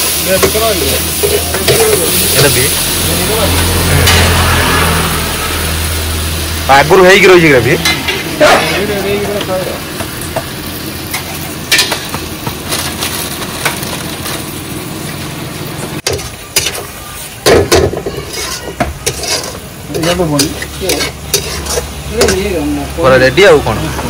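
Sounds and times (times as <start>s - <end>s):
chicken sizzling in a pan: 0.0s - 24.0s
stirring clatter: 17.7s - 22.5s.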